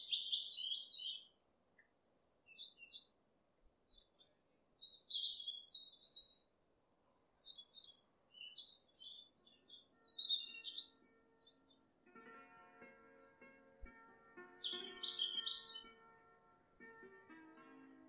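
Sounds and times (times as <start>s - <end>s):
songbirds chirping: 0.0s - 18.0s
faint background music: 9.5s - 18.0s.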